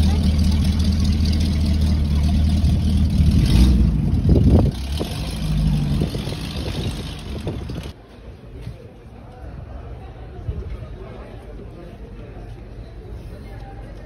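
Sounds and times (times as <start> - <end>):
car engine idling and revving: 0.0 - 8.0.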